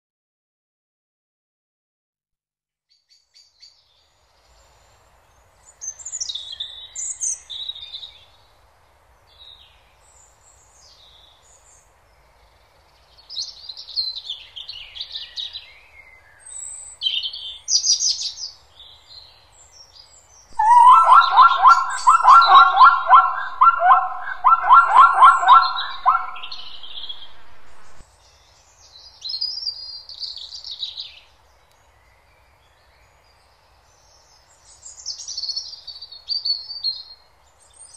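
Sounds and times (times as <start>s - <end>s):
songbirds chirping: 3.0s - 37.9s
animal call of rapid notes: 20.6s - 28.0s.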